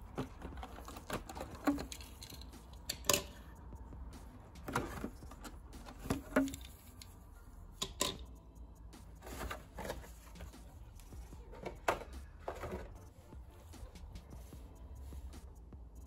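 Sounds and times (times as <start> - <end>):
plastic blister tray crinkling: 0.0 - 2.4.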